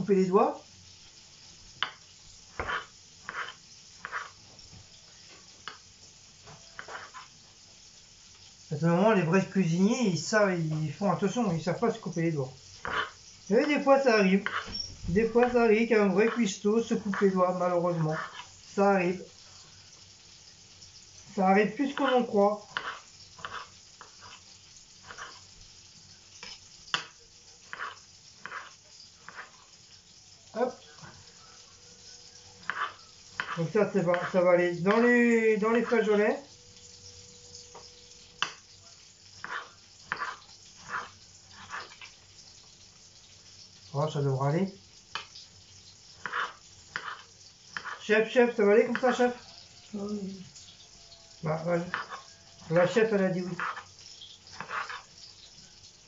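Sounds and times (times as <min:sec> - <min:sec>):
knife slicing tomatoes on board: 0:01.8 - 0:04.4, 0:06.5 - 0:07.3, 0:12.8 - 0:13.8, 0:14.4 - 0:15.6, 0:18.0 - 0:18.6, 0:21.9 - 0:25.5, 0:26.4 - 0:29.7, 0:32.6 - 0:35.1, 0:39.4 - 0:42.1, 0:46.2 - 0:48.1, 0:51.8 - 0:53.9, 0:54.5 - 0:55.1.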